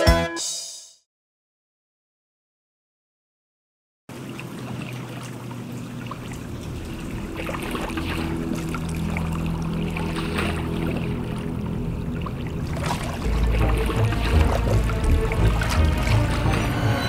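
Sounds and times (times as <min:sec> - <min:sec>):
small water splashes: 0:04.1 - 0:17.0
water lapping and trickling: 0:04.1 - 0:17.0
low drone of held tones: 0:05.9 - 0:17.0.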